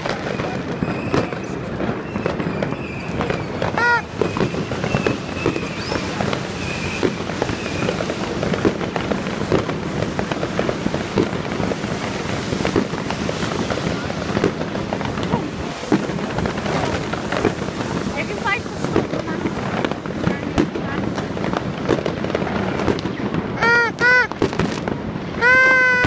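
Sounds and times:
fireworks and firecrackers bangs: 0:00.0 - 0:26.0.

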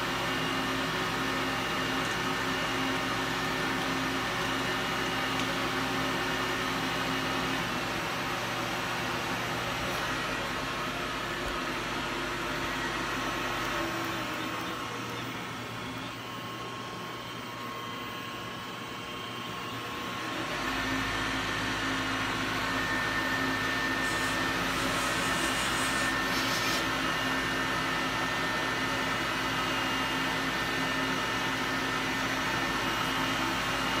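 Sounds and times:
machining spindle whine: 0:00.0 - 0:34.0.

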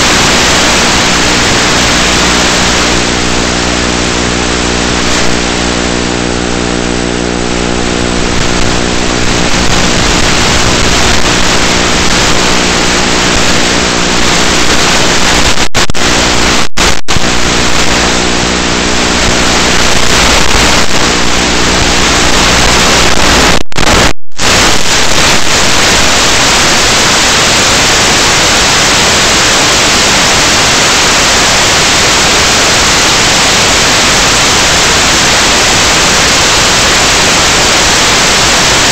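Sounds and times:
radio static hiss: 0:00.0 - 0:38.9
steady motor hum: 0:03.0 - 0:13.2.

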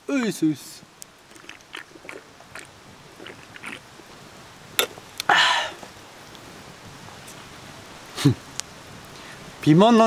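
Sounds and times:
person gulping and swallowing: 0:01.2 - 0:04.1, 0:04.8 - 0:05.3
breathy rush: 0:05.3 - 0:05.8.

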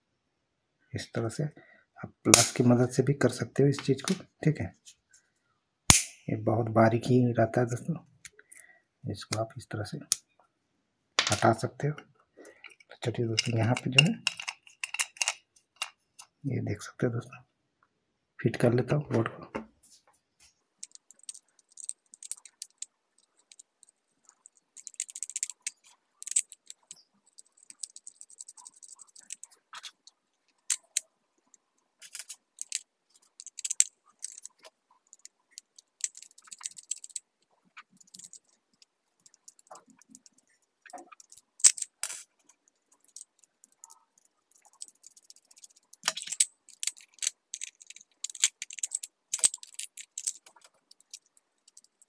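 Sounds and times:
plastic parts clicking and rattling: 0:12.6 - 0:16.4, 0:20.8 - 0:52.0.

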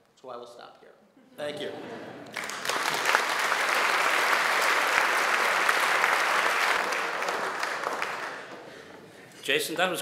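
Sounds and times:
audience applauding: 0:02.2 - 0:08.9.

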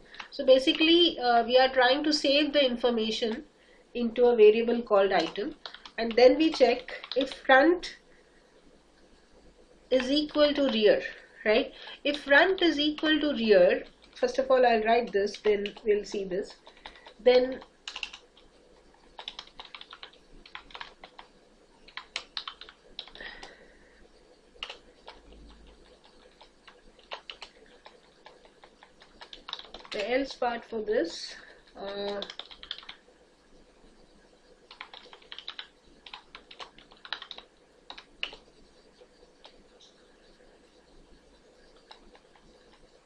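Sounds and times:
keyboard typing clicks: 0:05.2 - 0:07.4, 0:15.3 - 0:18.5, 0:19.2 - 0:21.3, 0:21.9 - 0:23.6, 0:24.6 - 0:30.4, 0:31.7 - 0:33.0, 0:34.7 - 0:38.5.

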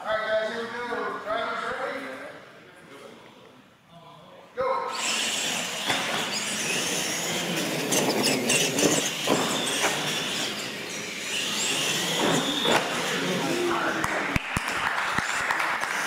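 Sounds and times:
toy truck motors whining: 0:04.9 - 0:14.0
tyres rolling on concrete: 0:05.9 - 0:14.4.

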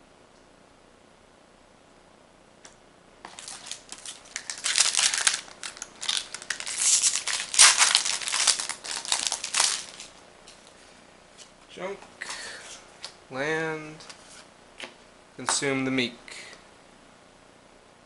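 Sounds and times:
foil wrapper tearing and crinkling: 0:03.3 - 0:10.1.

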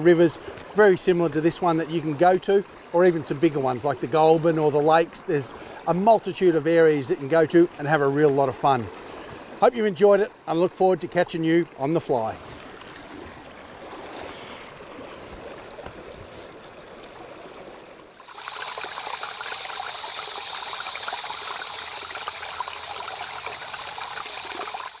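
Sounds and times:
loud rush of running water: 0:00.0 - 0:10.0, 0:18.0 - 0:25.0
stony stream flowing: 0:00.0 - 0:25.0
feet sloshing through water: 0:12.3 - 0:24.1.

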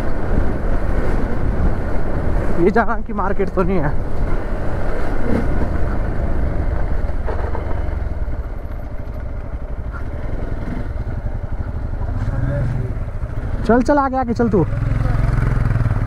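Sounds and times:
motorcycle engine running: 0:04.5 - 0:16.0.

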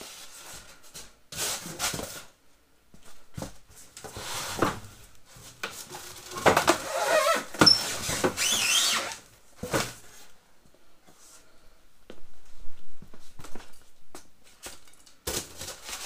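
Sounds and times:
styrofoam rubbing and squeaking: 0:05.8 - 0:09.2.

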